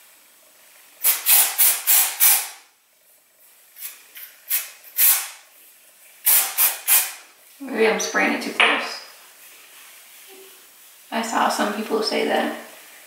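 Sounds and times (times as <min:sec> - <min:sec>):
aerosol spray hissing bursts: 0:01.0 - 0:02.6, 0:03.8 - 0:07.3.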